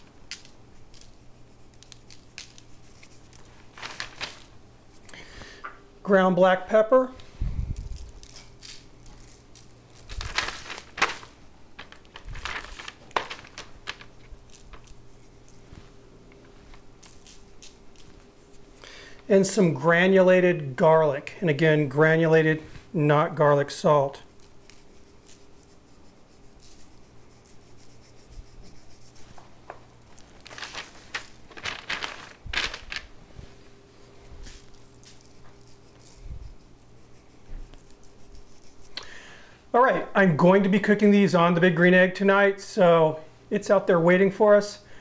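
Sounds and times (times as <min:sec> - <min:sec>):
hands scrubbing meat on paper: 0:00.0 - 0:04.6, 0:07.8 - 0:18.8, 0:23.6 - 0:33.6, 0:34.4 - 0:39.0
crinkling and rustling gloves: 0:00.0 - 0:05.5, 0:07.2 - 0:19.2, 0:24.3 - 0:39.1
faint room hum: 0:00.0 - 0:45.0.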